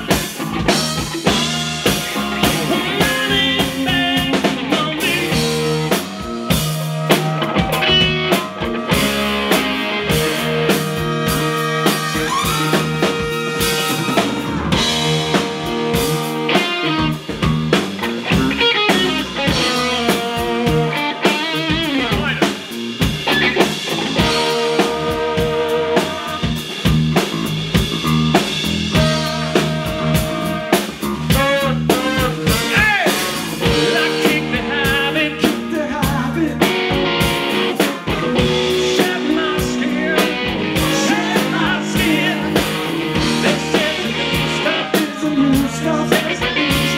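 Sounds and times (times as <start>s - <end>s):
drum kit: 0.0s - 46.9s
electric bass: 0.0s - 46.9s
electric guitar: 0.0s - 46.9s
saxophone: 0.6s - 4.4s, 5.0s - 17.3s, 24.2s - 26.7s, 29.0s - 35.6s
trumpet: 0.8s - 3.4s, 5.6s - 15.2s, 29.0s - 34.4s.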